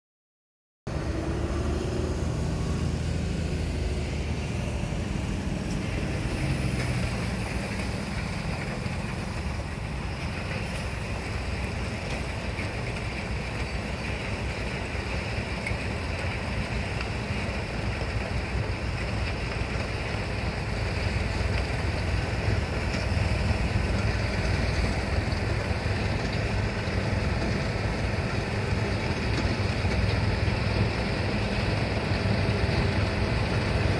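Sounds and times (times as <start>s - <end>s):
dump truck pulling away: 0.9s - 33.9s
rotary snowplow working: 0.9s - 33.9s.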